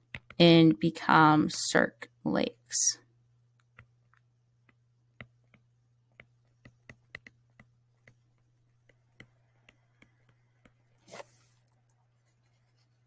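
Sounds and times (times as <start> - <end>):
stylus tapping on a tablet: 0.0 - 0.4, 3.6 - 10.9.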